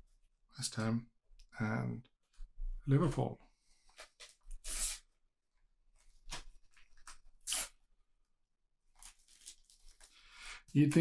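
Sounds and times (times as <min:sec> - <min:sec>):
sticker packet tearing and rustling: 0:08.9 - 0:10.1.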